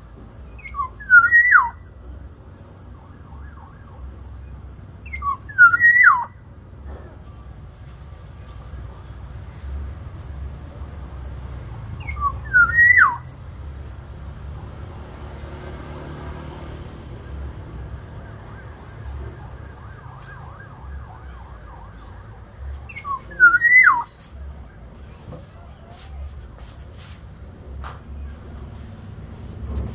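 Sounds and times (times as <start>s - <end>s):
bird fluty whistled call: 0.5s - 1.8s, 5.0s - 6.4s, 12.0s - 13.4s, 22.9s - 24.2s
soft bird warbling: 0.6s - 1.8s, 5.1s - 6.4s, 12.0s - 13.4s, 22.9s - 24.2s.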